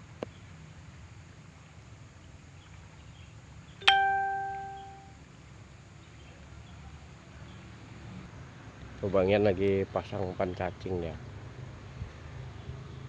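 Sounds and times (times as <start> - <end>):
faint outdoor background: 0.0 - 13.0
bell-like ding: 3.8 - 5.1.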